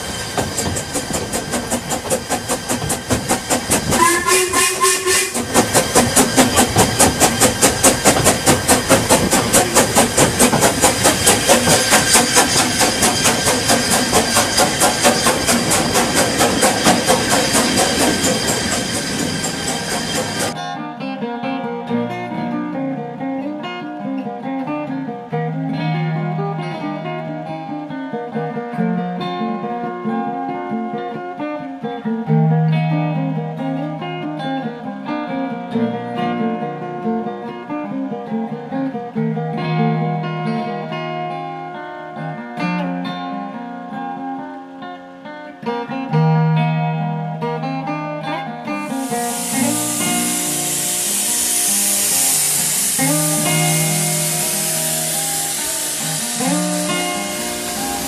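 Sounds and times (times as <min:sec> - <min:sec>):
acoustic guitar improvisation: 0:20.5 - 0:58.0.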